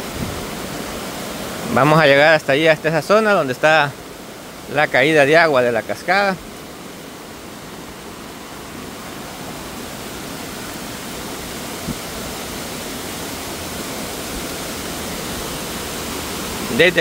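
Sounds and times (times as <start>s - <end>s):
waterfall rushing: 0.0s - 17.0s.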